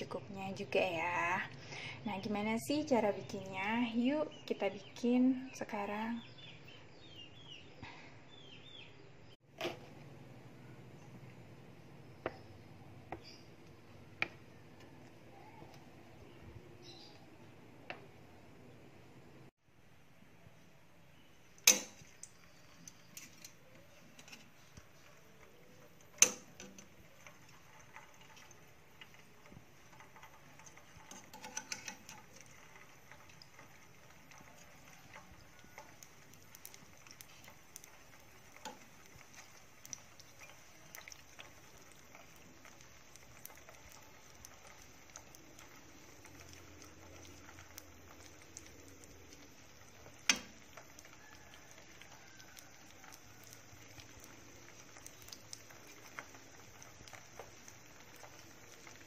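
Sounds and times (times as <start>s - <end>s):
oil sizzling and popping: 0.0s - 7.8s, 9.2s - 59.0s
metal tongs clicking on pan: 21.6s - 22.3s, 26.0s - 26.9s, 30.0s - 32.5s, 50.2s - 50.6s.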